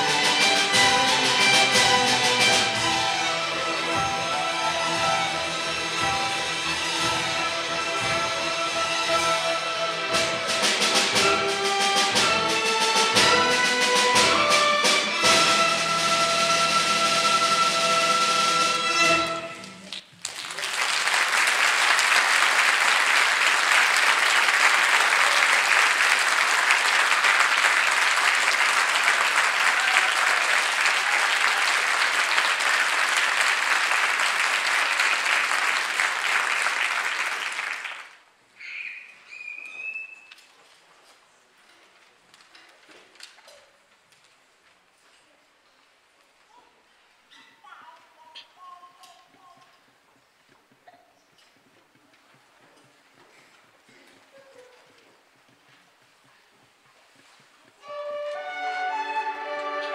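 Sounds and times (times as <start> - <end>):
orchestra of bowed strings: 0.0 - 19.8, 57.8 - 59.9
audience applauding: 19.6 - 38.2.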